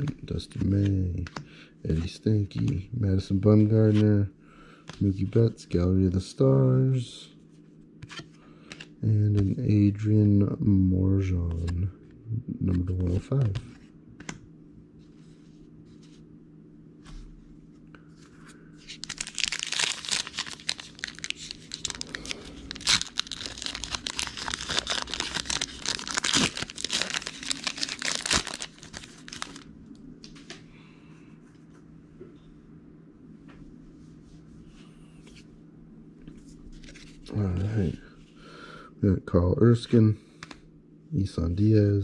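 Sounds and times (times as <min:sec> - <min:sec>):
wrapper tearing and crinkling: 0:19.0 - 0:29.7.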